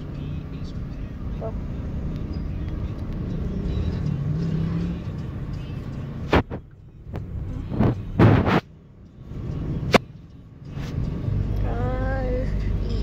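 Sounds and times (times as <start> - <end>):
low rumble of car: 0.0 - 13.0.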